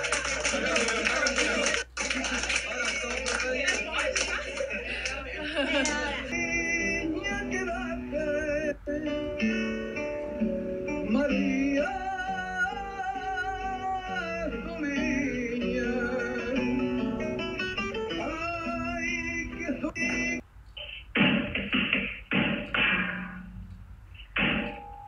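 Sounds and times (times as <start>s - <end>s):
person singing with vibrato: 5.4s - 9.8s, 10.9s - 17.2s, 18.0s - 20.4s
plucked guitar: 5.9s - 20.4s.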